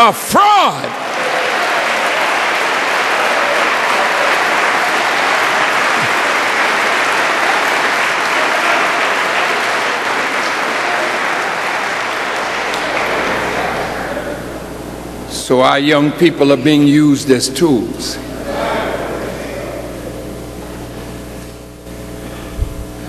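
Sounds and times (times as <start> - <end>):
large audience applauding: 0.0 - 14.8.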